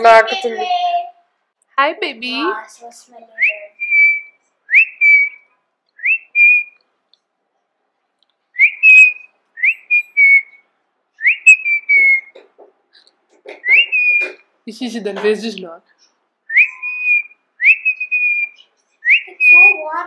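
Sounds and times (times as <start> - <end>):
person whistling: 3.4 - 5.4, 6.0 - 6.7, 8.6 - 10.6, 11.2 - 12.3, 13.6 - 14.4, 16.5 - 19.9.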